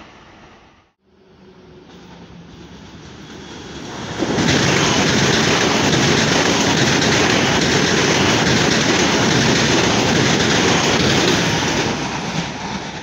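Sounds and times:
electric train passing: 0.0s - 13.0s
wheels rushing on rail: 0.0s - 13.0s.

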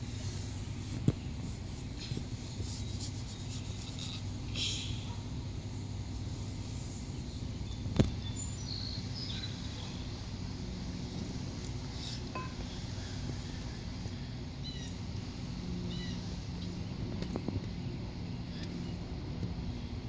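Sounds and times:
low mechanical hum: 0.0s - 20.0s
bird chirps: 7.2s - 9.9s, 14.6s - 15.0s.

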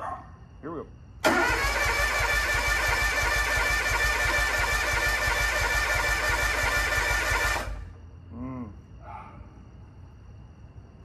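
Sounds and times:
engine cranking by electric starter: 1.2s - 8.0s.

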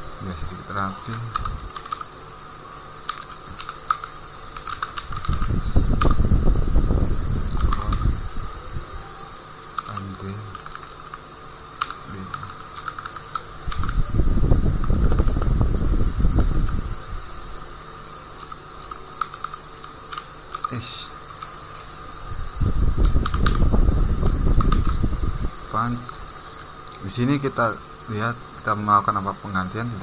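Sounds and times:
thin whine: 2.5s - 10.6s
keyboard key clicks: 18.4s - 21.5s.

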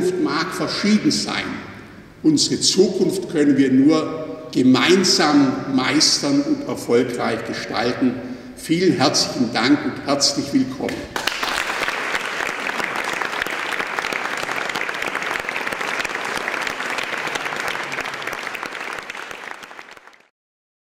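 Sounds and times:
audience applauding: 11.2s - 20.3s.

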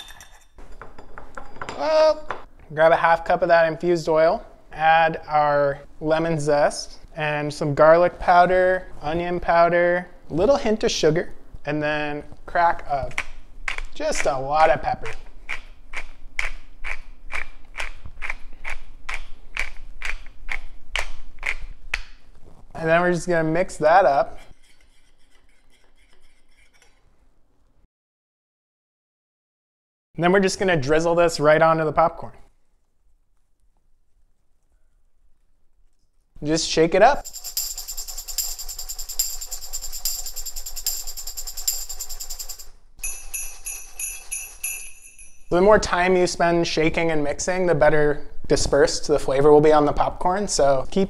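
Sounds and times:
pepper mill grinding peppercorns: 37.2s - 44.8s
tambourine shaken: 37.2s - 45.5s
tinkling metal rattle shaken: 37.2s - 45.5s.

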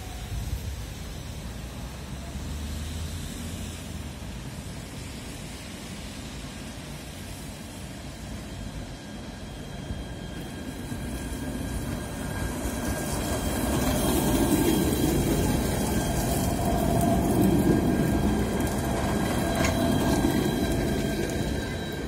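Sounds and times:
tram passing: 0.0s - 22.0s.

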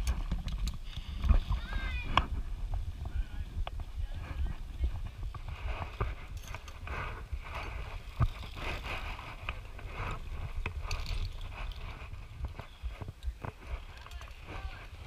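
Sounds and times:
footsteps on wooden log bridge: 0.0s - 15.0s
wind rumble on microphone: 0.0s - 15.0s
climbing gear clicking: 5.4s - 15.0s.

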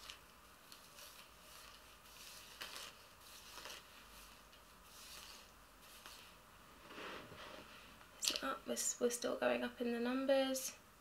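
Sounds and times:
soft hair rustles: 0.0s - 8.8s.

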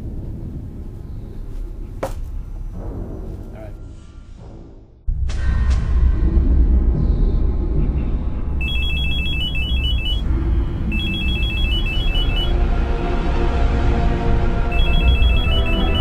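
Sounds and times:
low rumbling drone: 0.0s - 16.0s
electronic telephone ringing: 8.6s - 10.3s, 10.9s - 12.6s, 14.7s - 16.0s.

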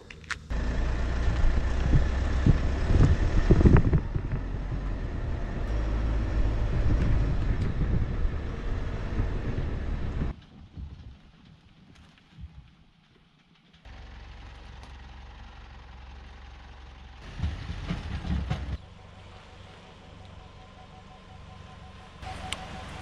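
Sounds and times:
engine running: 0.1s - 10.4s, 13.1s - 23.0s
wind on microphone: 1.4s - 10.9s.

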